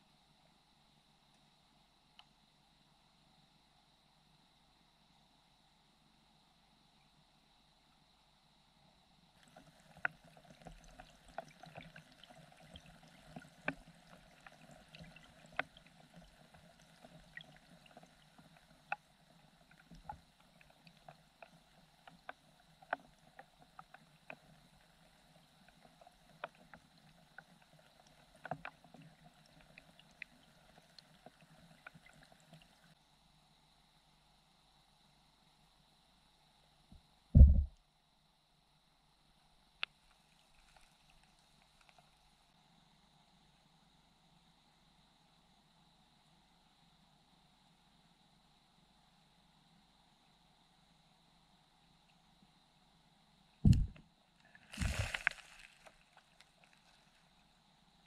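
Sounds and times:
faint underwater hiss: 0:00.0 - 0:58.0
sharp underwater clicks: 0:53.6 - 0:54.0.

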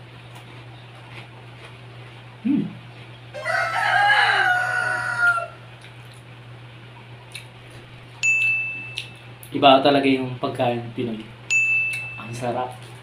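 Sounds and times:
steady low hum: 0:00.0 - 0:13.0
rooster crowing: 0:03.3 - 0:05.7.

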